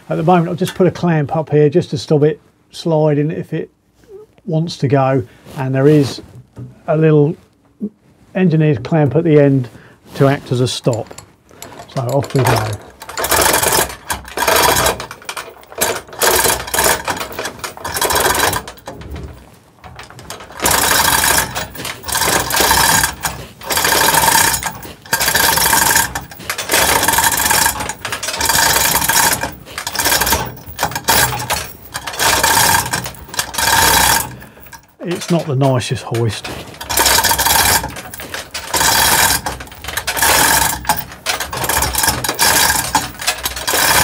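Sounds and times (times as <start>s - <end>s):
chain hoist ratcheting: 10.5s - 44.0s.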